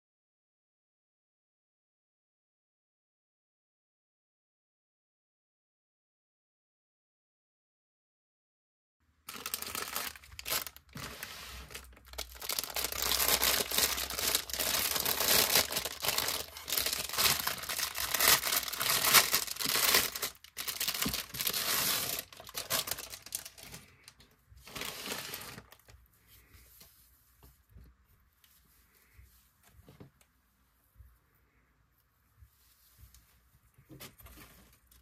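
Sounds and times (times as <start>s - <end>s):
plastic packaging crinkling: 9.3s - 25.9s.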